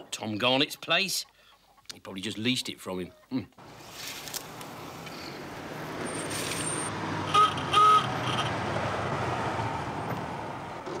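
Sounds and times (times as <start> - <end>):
car horn toots: 7.3 - 8.5.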